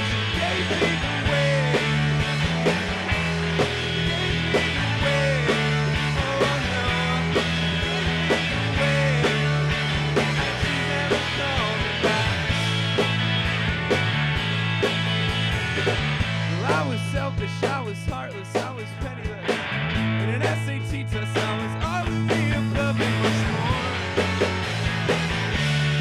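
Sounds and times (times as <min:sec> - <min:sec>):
man singing: 0:00.0 - 0:02.6, 0:04.0 - 0:12.7, 0:16.5 - 0:19.6, 0:20.2 - 0:24.2
drum kit beat: 0:00.0 - 0:26.0
electric guitars: 0:00.0 - 0:26.0.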